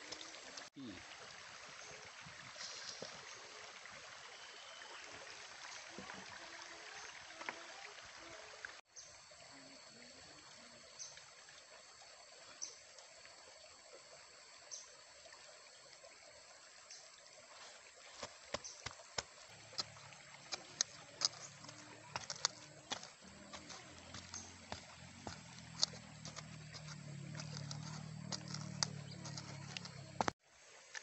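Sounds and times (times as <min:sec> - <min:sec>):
running water: 0:00.0 - 0:31.0.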